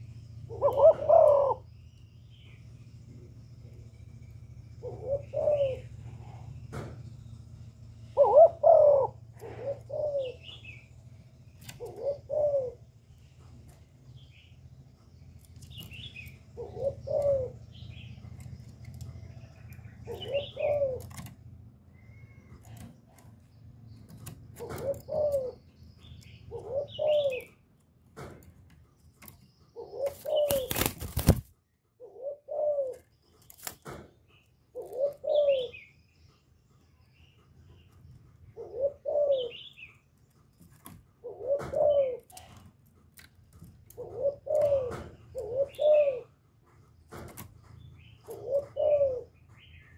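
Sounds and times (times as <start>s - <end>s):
dove cooing: 0.0s - 1.7s, 4.8s - 6.8s, 8.0s - 10.8s, 11.6s - 13.1s, 15.5s - 23.4s, 24.2s - 27.6s, 29.2s - 31.4s, 32.0s - 34.0s, 34.7s - 36.0s, 38.5s - 39.9s, 40.7s - 46.5s, 48.0s - 49.9s.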